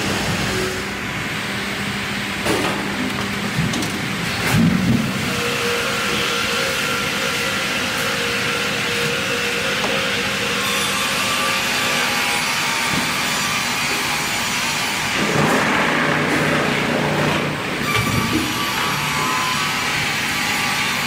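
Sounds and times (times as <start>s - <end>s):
sawmill machinery noise: 0.0s - 21.0s
saw cutting logs: 5.2s - 21.0s.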